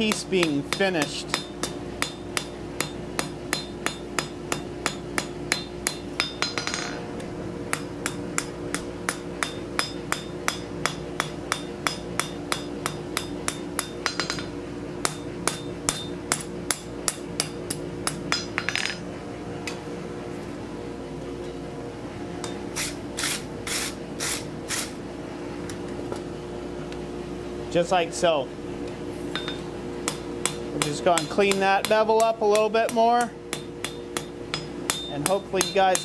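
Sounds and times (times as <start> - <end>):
hammer striking steel on anvil: 0.0 - 7.0, 7.7 - 19.0, 22.4 - 22.7, 29.3 - 36.0.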